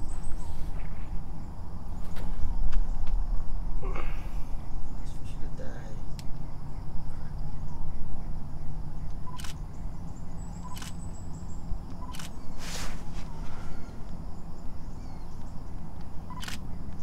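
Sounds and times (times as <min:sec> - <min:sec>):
camera shutter clicks: 0:09.3 - 0:09.6, 0:10.6 - 0:11.0, 0:12.0 - 0:12.4, 0:16.3 - 0:16.6.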